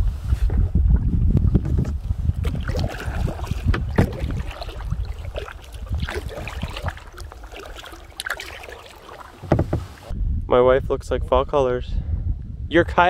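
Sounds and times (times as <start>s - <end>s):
wind rumble on microphone: 0.0s - 7.8s, 9.4s - 13.0s
paddle blades splashing: 1.6s - 10.1s
water dripping: 2.4s - 10.1s.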